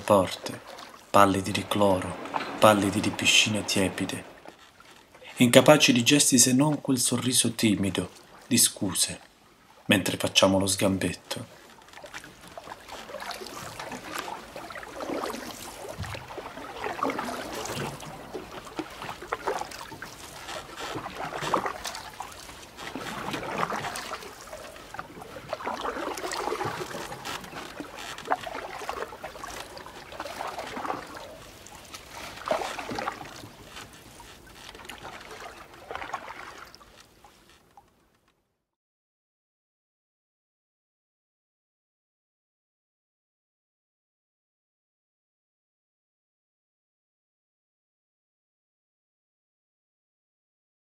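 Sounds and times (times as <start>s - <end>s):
water lapping and sloshing: 0.0s - 38.3s.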